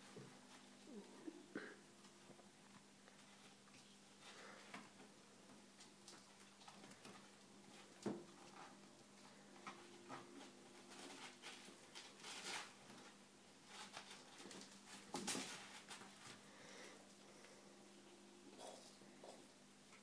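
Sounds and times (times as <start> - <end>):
faint steady hum: 0.0 - 20.0
kittens scuffling on blanket: 5.6 - 20.0.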